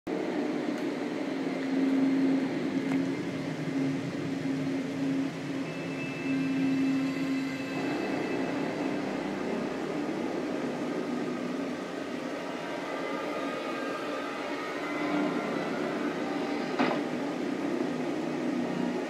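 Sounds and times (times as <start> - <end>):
ominous low drone: 0.1 - 19.0
thin high tone: 5.6 - 11.6.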